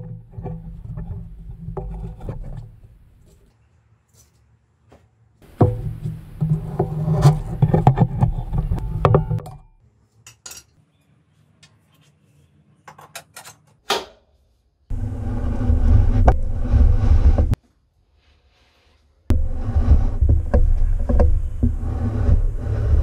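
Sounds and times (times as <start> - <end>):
metal clanks and knocks: 5.4 - 10.7, 19.3 - 23.0
low rumble: 14.9 - 17.6, 19.3 - 23.0
steady mechanical noise: 14.9 - 17.6, 19.3 - 23.0.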